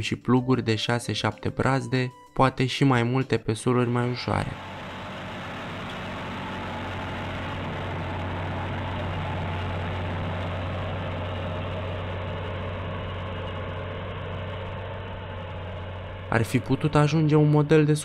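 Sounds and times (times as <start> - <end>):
tractor diesel engine running: 4.3 - 17.6.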